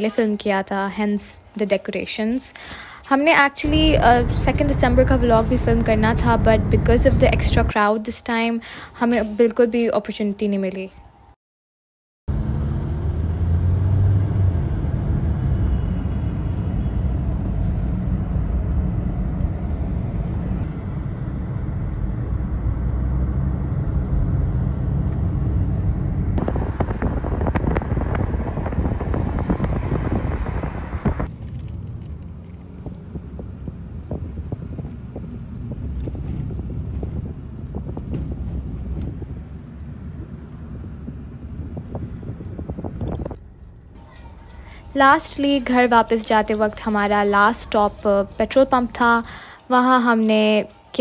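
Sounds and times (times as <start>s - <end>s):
louder rushing: 3.6s - 7.7s
car road noise rumble: 3.6s - 7.8s, 12.3s - 48.6s.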